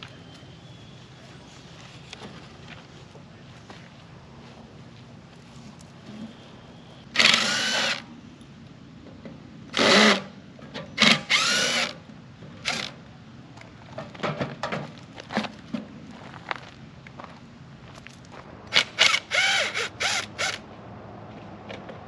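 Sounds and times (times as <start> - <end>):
cordless drill bursts: 7.2 - 8.1, 9.8 - 10.3, 11.0 - 12.0, 18.7 - 20.6.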